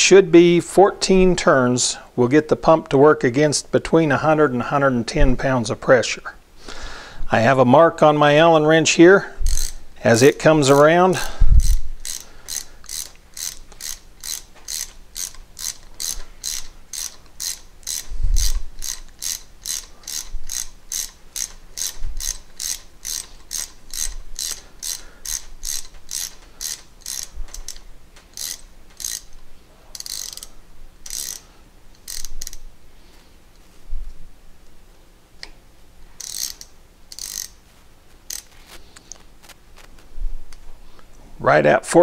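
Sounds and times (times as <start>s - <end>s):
wrench turning screw clicking: 9.5s - 32.7s, 36.2s - 37.6s, 38.3s - 39.1s.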